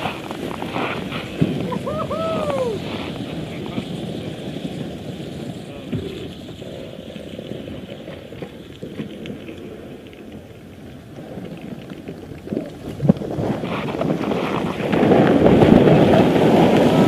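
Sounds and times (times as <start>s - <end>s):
wind buffeting the microphone: 0.0s - 17.0s.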